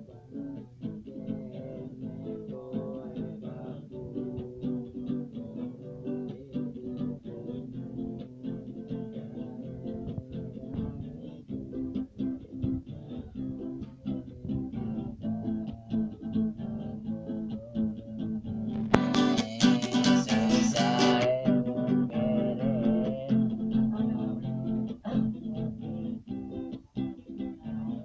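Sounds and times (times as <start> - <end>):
acoustic guitar strumming: 0.0 - 28.0.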